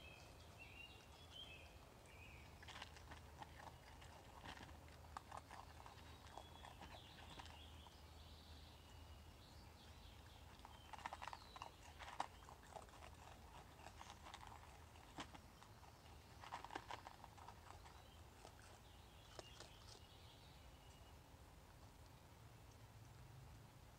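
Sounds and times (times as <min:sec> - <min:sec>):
raccoon eating from plastic tub: 0:00.0 - 0:21.0.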